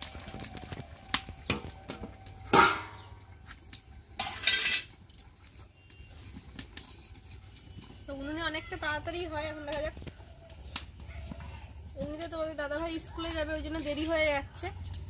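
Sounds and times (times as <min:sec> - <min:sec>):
pot lid clanging: 0:02.5 - 0:03.1.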